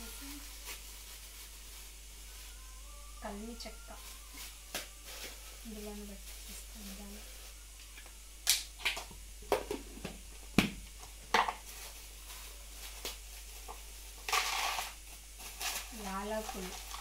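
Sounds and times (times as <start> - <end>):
plastic bag crinkling: 0.0 - 2.6, 3.3 - 7.6, 11.1 - 17.0
plastic packets crinkling: 0.0 - 2.6, 3.3 - 8.0, 11.0 - 17.0.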